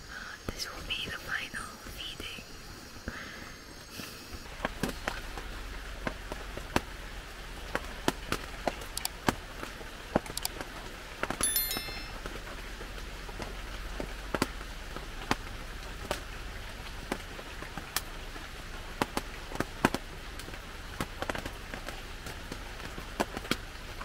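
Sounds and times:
forest ambience hiss: 0.0s - 24.0s.

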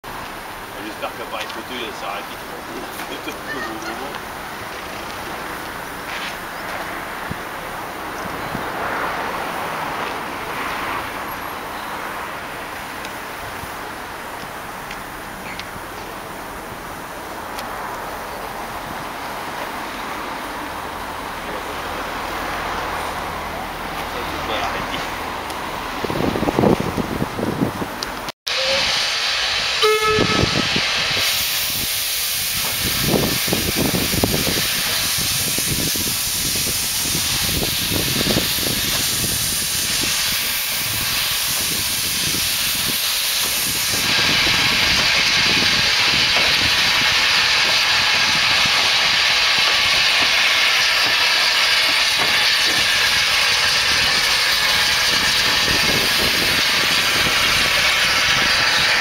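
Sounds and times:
steam locomotive hissing: 0.1s - 26.8s, 28.5s - 59.0s
locomotive chuffs and clanks: 28.1s - 59.0s.

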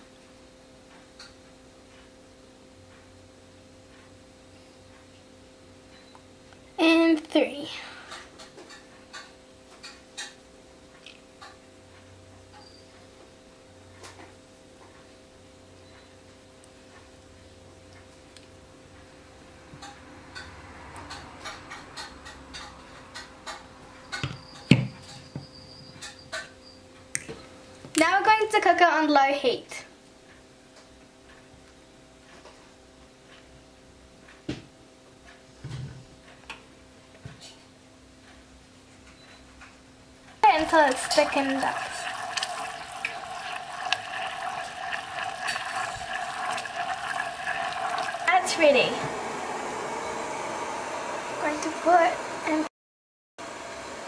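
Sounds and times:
syrup boiling with bubbling hiss: 40.4s - 52.7s.

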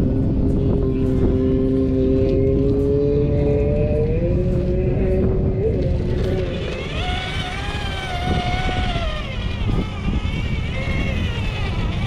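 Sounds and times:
low rumble: 0.0s - 12.0s
toy car electric motor whining: 5.6s - 12.0s.

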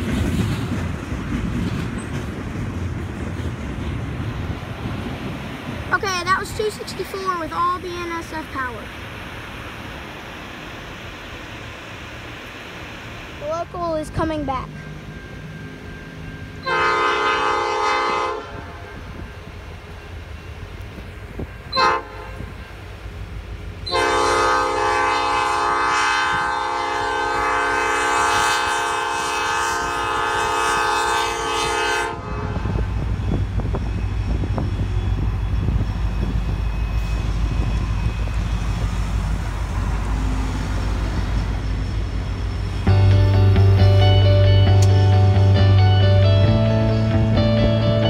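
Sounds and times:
diesel engine rumbling: 0.0s - 48.0s
locomotive air horn blasts: 16.6s - 18.8s, 21.7s - 22.5s, 23.8s - 33.0s.

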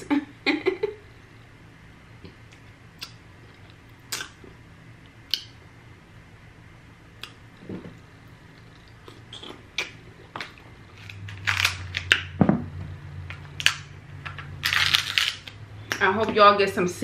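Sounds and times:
chewing and wet mouth sounds: 8.4s - 12.1s
crab shell cracking: 9.8s - 12.3s, 14.6s - 15.6s.

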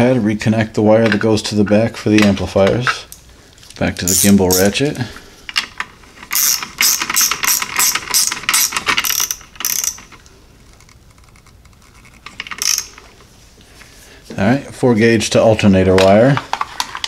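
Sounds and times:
ratchet clicking: 6.3s - 10.2s, 10.8s - 13.0s.

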